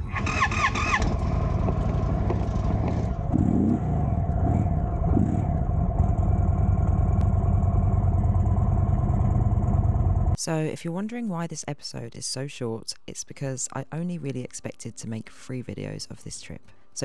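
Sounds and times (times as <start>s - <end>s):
motorcycle engine idling: 0.0s - 10.4s.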